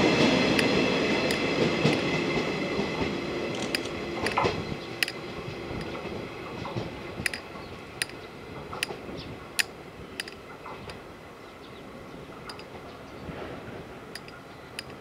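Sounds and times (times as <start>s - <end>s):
electric train pulling away: 0.0s - 15.0s
sharp clicks: 9.6s - 11.0s.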